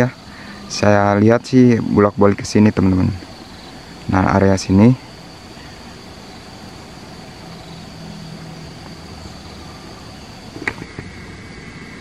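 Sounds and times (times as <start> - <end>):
distant engine hum: 0.0 - 12.0
high insect drone: 0.0 - 12.0.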